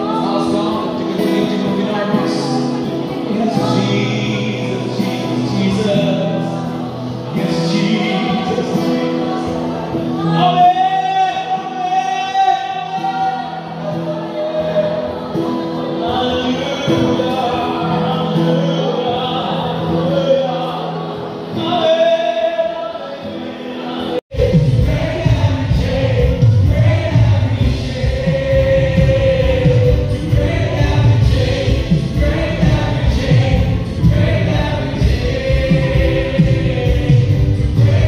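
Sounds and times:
group singing gospel song: 0.0 - 38.0
held instrumental chords: 24.3 - 38.0.

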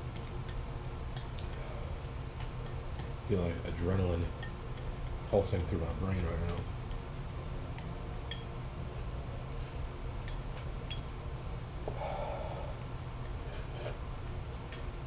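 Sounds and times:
man breathing hard through nose: 11.8 - 12.9.

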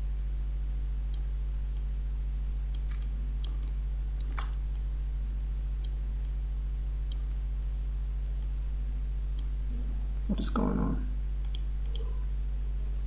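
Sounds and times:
low electrical hum: 0.0 - 13.0
computer mouse clicking: 2.7 - 4.9, 11.4 - 12.1.

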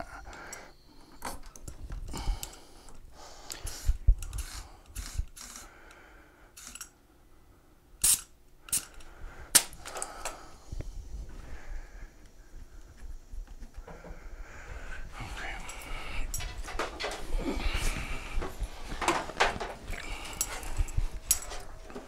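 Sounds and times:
compressed air bursts: 3.6 - 5.7, 8.0 - 8.9.

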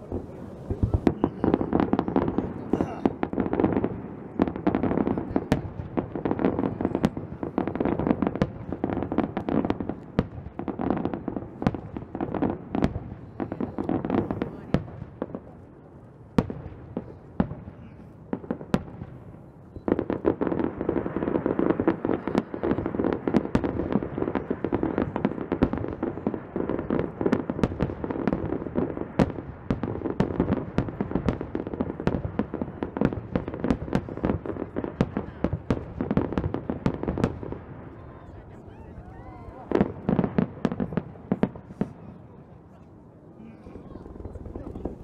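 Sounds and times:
rumble of explosions: 0.0 - 19.3, 43.2 - 45.0
fireworks bangs: 0.0 - 45.0.

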